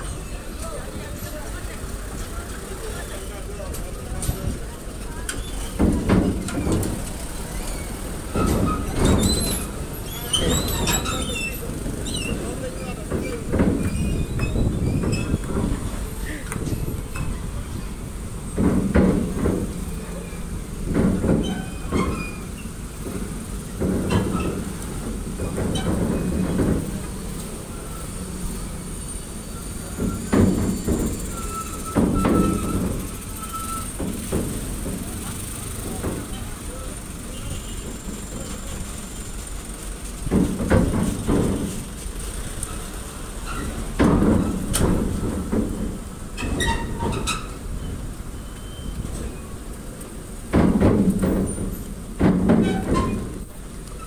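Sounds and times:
metal squealing: 0:05.3 - 0:18.7, 0:19.8 - 0:23.0, 0:23.7 - 0:34.4, 0:42.6 - 0:45.3, 0:46.3 - 0:49.6
heavy metal clanks: 0:05.3 - 0:28.2, 0:50.3 - 0:54.0.

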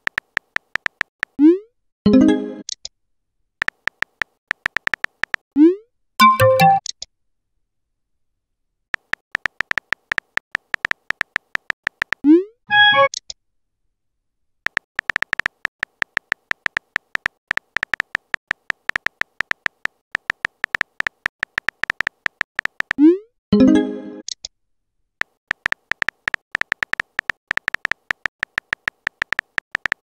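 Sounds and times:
phone keyboard typing clicks: 0:00.0 - 0:01.4, 0:03.6 - 0:05.4, 0:09.0 - 0:12.2, 0:14.7 - 0:23.0, 0:25.2 - 0:30.0
message sent swoop: 0:12.7 - 0:13.1.

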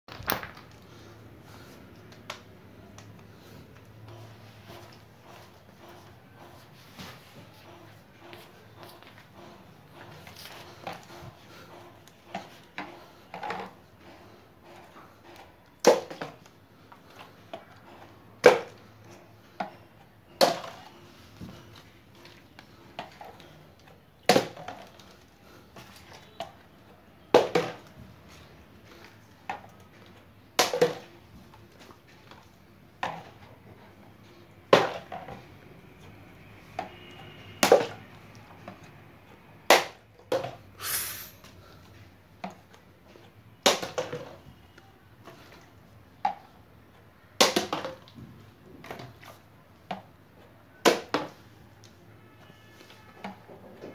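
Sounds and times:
plastic bottle landing with clacks: 0:43.6 - 0:44.4.

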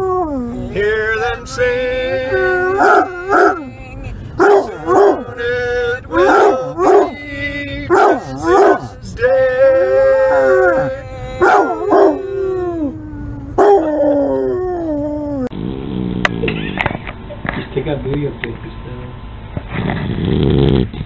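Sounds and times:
dog howling: 0:00.0 - 0:07.3, 0:07.9 - 0:15.5
dog yelping: 0:02.6 - 0:03.7, 0:04.4 - 0:05.3, 0:06.2 - 0:07.2, 0:07.9 - 0:08.9, 0:10.3 - 0:12.3.

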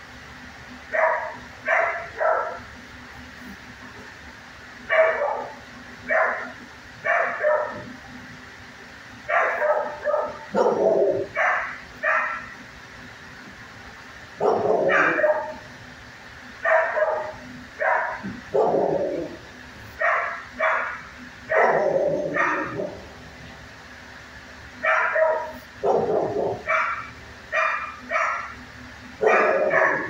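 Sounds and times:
dog barking: 0:00.9 - 0:02.6, 0:04.9 - 0:07.9, 0:09.3 - 0:12.5, 0:14.4 - 0:15.6, 0:16.6 - 0:19.4, 0:20.0 - 0:23.0, 0:24.8 - 0:28.6, 0:29.2 - 0:30.0.

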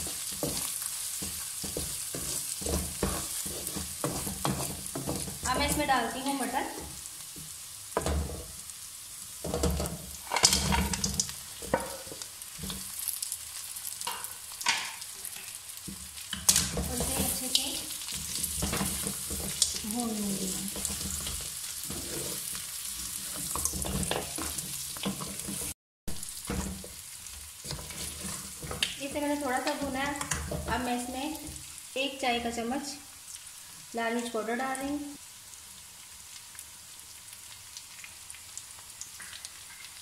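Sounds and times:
wooden spatula scraping a pan: 0:00.0 - 0:08.6, 0:15.3 - 0:25.8, 0:26.4 - 0:31.7
meat sizzling in hot oil: 0:00.0 - 0:40.0.

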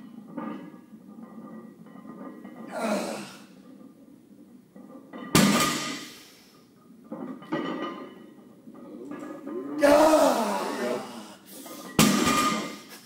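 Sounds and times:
barbell thud and clank: 0:05.2 - 0:06.1, 0:11.9 - 0:12.8.

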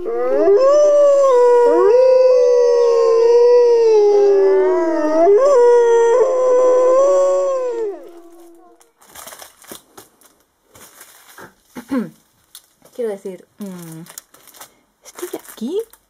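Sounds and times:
wolves howling: 0:00.0 - 0:08.9.

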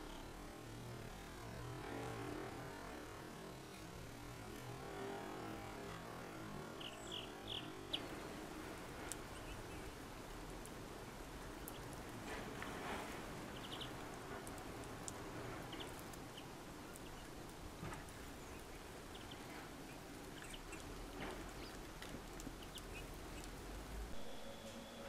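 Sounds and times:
steady low hiss: 0:00.0 - 0:25.0
songbirds chirping: 0:06.6 - 0:10.4, 0:11.4 - 0:23.7.

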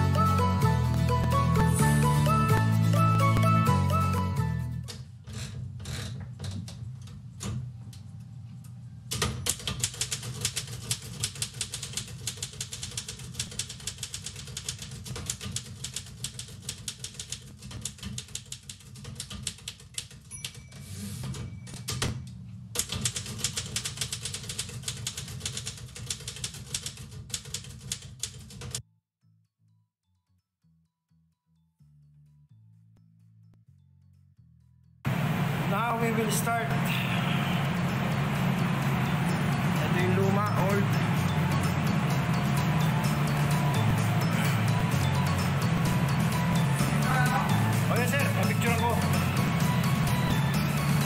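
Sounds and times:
typewriter keystrokes clacking: 0:09.1 - 0:20.6, 0:22.8 - 0:28.8.

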